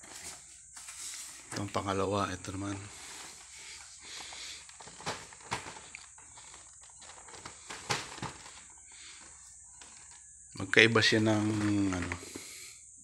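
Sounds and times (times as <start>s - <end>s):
faint hiss: 10.6s - 13.0s
cardboard rubbing: 11.0s - 12.4s.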